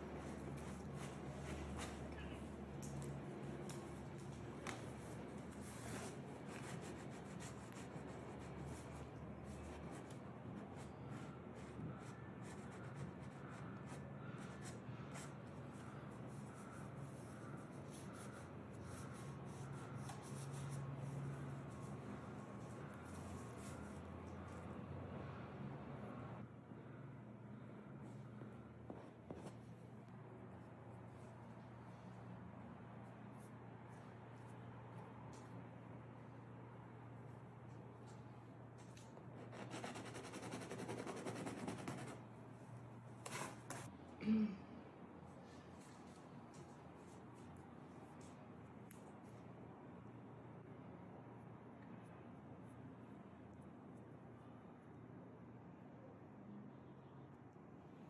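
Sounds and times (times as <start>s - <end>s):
paintbrush scrubbing canvas: 4.9s - 24.6s, 39.2s - 42.2s
paintbrush rubbing on canvas: 39.2s - 42.2s.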